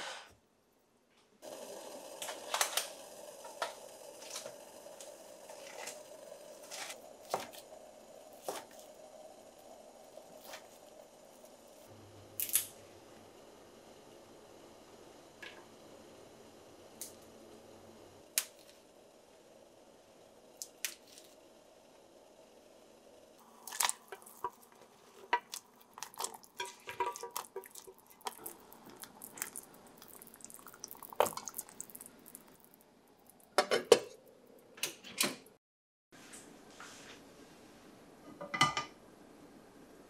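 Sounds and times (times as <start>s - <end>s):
dishes and utensils clattering: 26.2s - 28.0s, 33.6s - 34.2s.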